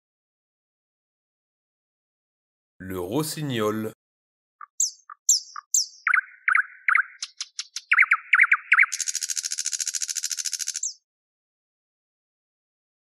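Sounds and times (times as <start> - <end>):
nightingale singing: 4.6 - 11.0.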